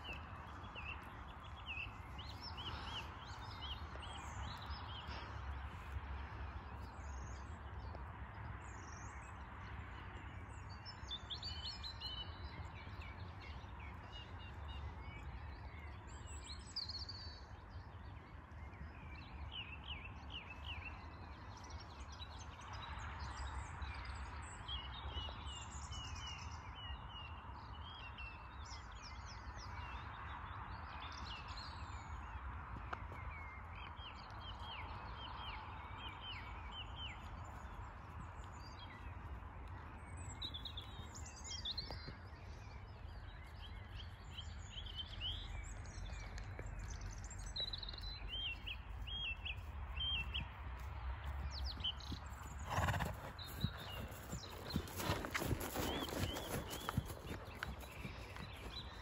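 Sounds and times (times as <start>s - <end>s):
songbirds chirping and singing: 51.3s - 59.0s.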